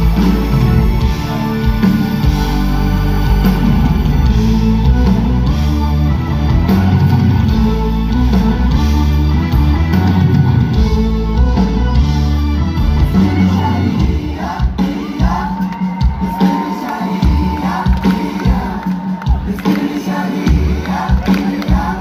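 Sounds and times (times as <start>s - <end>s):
electric guitar: 0.0s - 14.2s
keyboard: 0.0s - 16.1s
drums: 0.0s - 22.0s.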